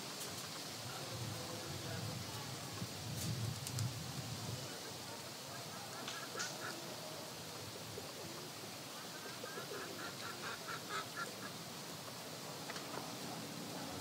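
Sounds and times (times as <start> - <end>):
steady background hiss: 0.0 - 14.0
birds calling: 5.4 - 6.9, 8.2 - 11.8.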